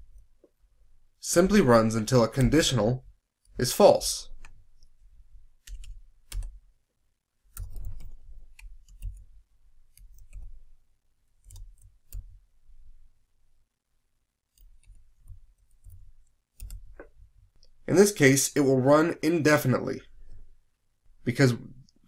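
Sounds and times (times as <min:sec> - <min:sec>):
keyboard typing clicks: 0:05.6 - 0:06.6, 0:07.5 - 0:09.3, 0:14.6 - 0:17.2.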